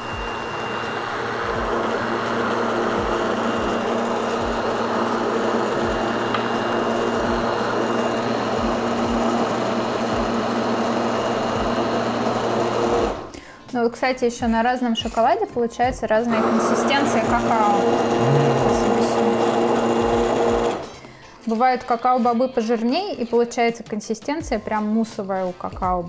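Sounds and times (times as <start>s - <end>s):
immersion blender running: 0.0s - 13.4s, 16.3s - 21.0s.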